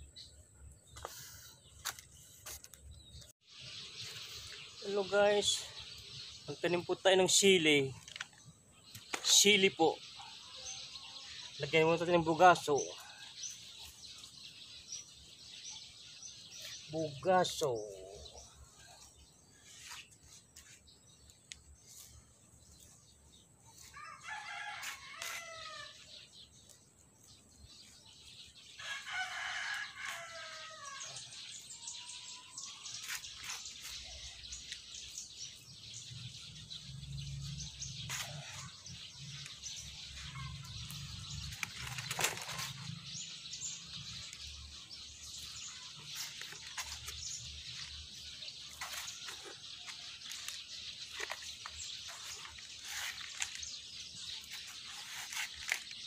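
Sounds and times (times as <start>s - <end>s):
hands working in soil: 0.8s - 3.3s, 16.5s - 28.1s, 32.6s - 36.3s, 37.2s - 56.0s
rooster crowing: 23.9s - 26.0s, 28.8s - 31.3s.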